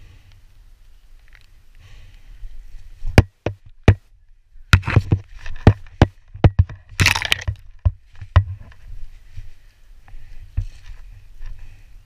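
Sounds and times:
foliage rustling: 0:00.0 - 0:12.0
sharp clicks and knocks: 0:04.7 - 0:08.8.

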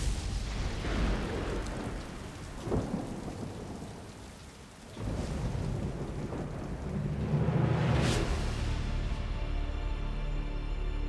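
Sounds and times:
low thunder rumble: 0:00.0 - 0:08.5
thunderclap: 0:00.0 - 0:08.8
steady rain: 0:00.0 - 0:10.8.

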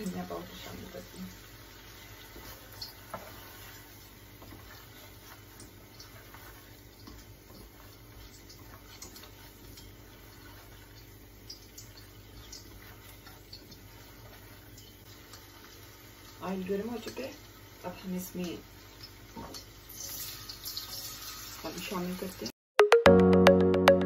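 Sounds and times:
faint sizzling: 0:00.0 - 0:22.5
spatula stirring thick gravy: 0:01.6 - 0:16.0.

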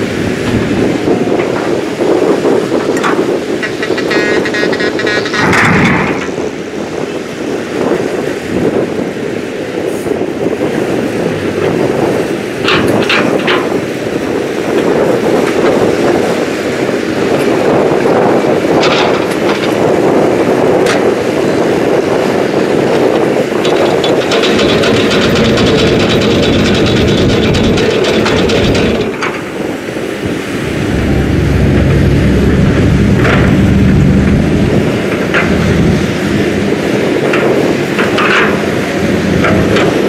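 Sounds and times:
excavator working: 0:00.0 - 0:40.0
metallic clanks and rattles: 0:02.8 - 0:06.4, 0:12.6 - 0:13.8, 0:18.8 - 0:19.8, 0:23.1 - 0:29.6, 0:30.7 - 0:40.0
dump truck pulling away: 0:23.8 - 0:40.0.

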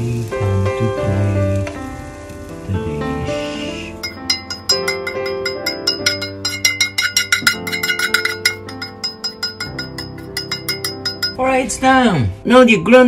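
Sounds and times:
music with sharply struck notes: 0:04.0 - 0:11.4.

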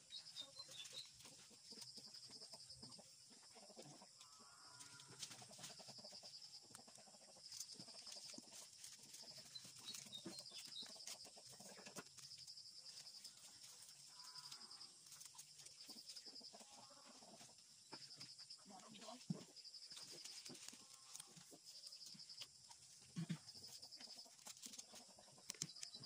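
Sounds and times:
faint animal call: 0:03.7 - 0:05.4, 0:14.0 - 0:15.0.

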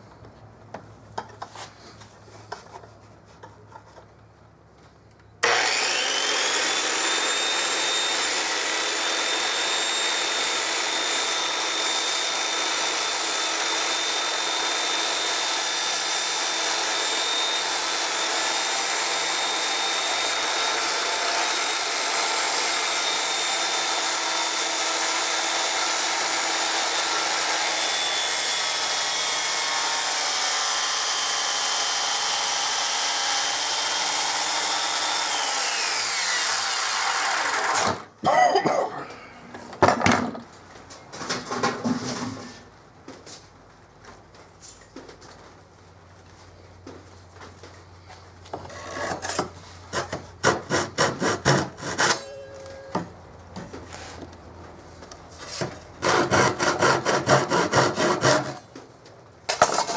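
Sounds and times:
circular saw cutting wood: 0:05.4 - 0:38.1, 0:48.6 - 0:52.4, 0:55.4 - 0:58.7.

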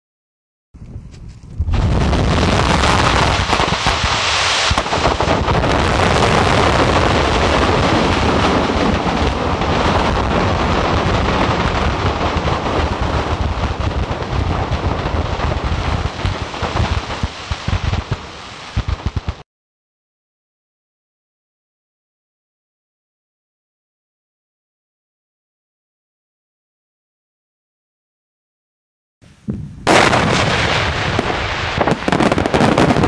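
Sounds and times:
fireworks crackling and rumbling: 0:01.2 - 0:19.4, 0:29.3 - 0:33.0
firework bangs: 0:01.6 - 0:19.4, 0:29.4 - 0:33.0.

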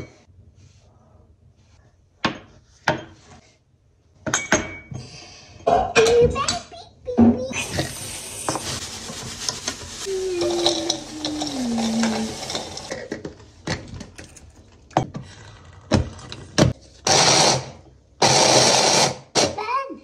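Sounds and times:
plastic bag rustling: 0:07.6 - 0:13.1
walnuts poured into bowl: 0:07.8 - 0:13.0
chopper grinding walnuts: 0:10.1 - 0:13.1.

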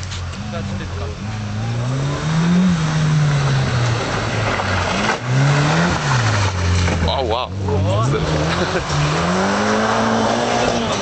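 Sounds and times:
rally car engine passing: 0:00.4 - 0:11.0.

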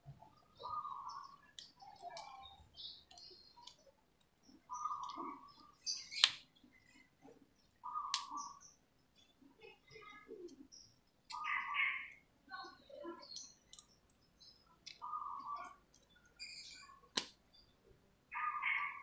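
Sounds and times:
birds chirping: 0:00.0 - 0:19.0
pliers clicking on wires: 0:17.1 - 0:17.4.

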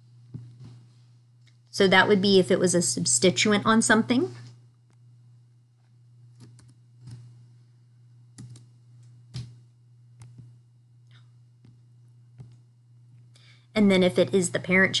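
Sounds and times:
steady low hum: 0:00.0 - 0:15.0
computer mouse and keyboard clicks: 0:06.4 - 0:07.3, 0:08.4 - 0:09.5.

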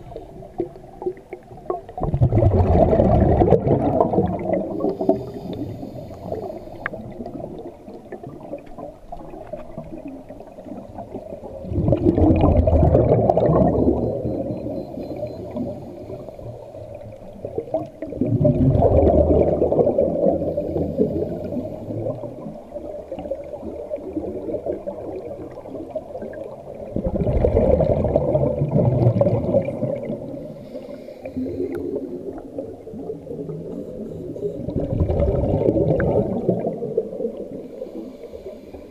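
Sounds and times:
diver exhaling bubbles underwater: 0:00.6 - 0:16.2, 0:17.4 - 0:30.6, 0:31.3 - 0:37.6.

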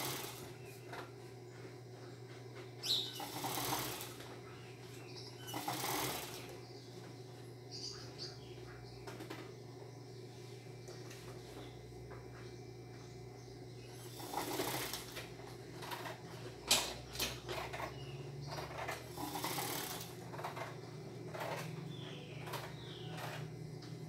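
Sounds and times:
sewing machine humming: 0:00.0 - 0:00.8, 0:02.8 - 0:04.4, 0:05.1 - 0:06.6, 0:13.9 - 0:24.0.

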